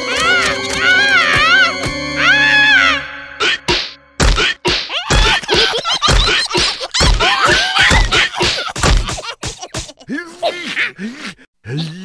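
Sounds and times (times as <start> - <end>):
heavy cartoon thuds and whacks: 3.7 - 10.0.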